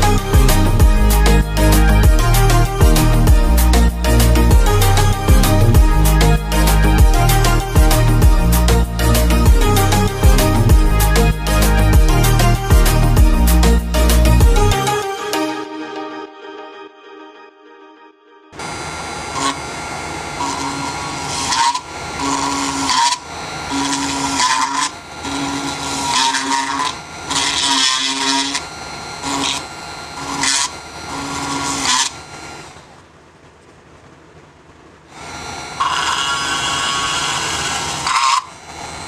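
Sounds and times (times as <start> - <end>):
small drill drilling plastic: 20.4 - 32.8, 35.2 - 39.0.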